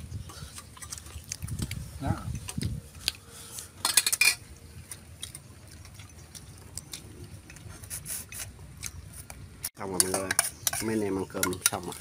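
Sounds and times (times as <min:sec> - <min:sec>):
chopsticks clicking against bowls: 0:09.8 - 0:12.0.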